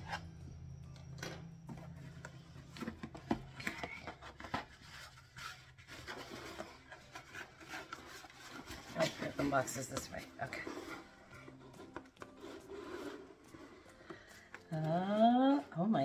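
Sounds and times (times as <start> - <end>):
low hum: 0.0 - 4.2.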